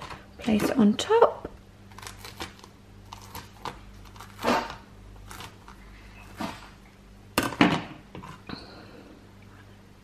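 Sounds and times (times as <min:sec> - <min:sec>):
knife crunching through breaded chicken: 0:01.9 - 0:06.6.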